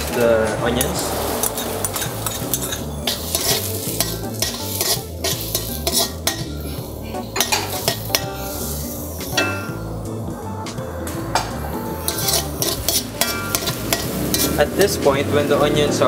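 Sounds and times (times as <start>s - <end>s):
metal utensil scraping a wok: 0.0s - 10.2s, 11.3s - 15.5s
oil sizzling: 0.0s - 16.0s.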